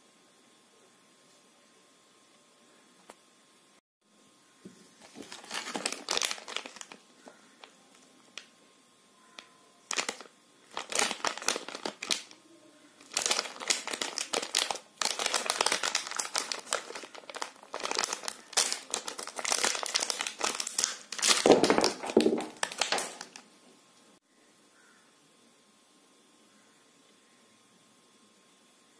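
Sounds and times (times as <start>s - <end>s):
packet tearing open: 5.0s - 7.7s, 9.9s - 12.4s, 13.0s - 23.4s
plastic wrapper crinkling: 5.0s - 8.5s, 9.3s - 12.4s, 13.0s - 23.5s.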